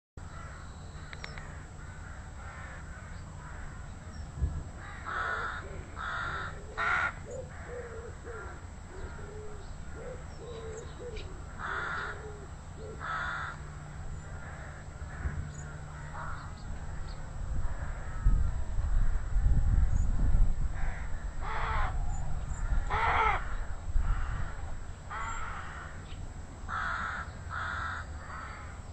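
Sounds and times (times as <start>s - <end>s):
rooks cawing: 0.2s - 4.0s, 4.8s - 19.9s, 20.7s - 28.9s.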